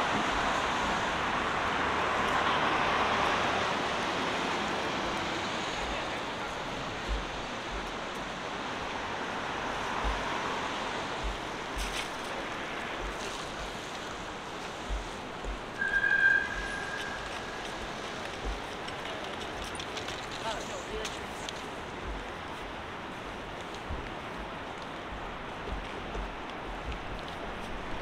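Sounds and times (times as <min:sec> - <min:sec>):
street traffic roar: 0:00.0 - 0:28.0
footsteps thumping: 0:07.0 - 0:08.2, 0:09.9 - 0:15.8, 0:16.6 - 0:19.0, 0:23.8 - 0:27.7
high squeal: 0:15.8 - 0:18.0.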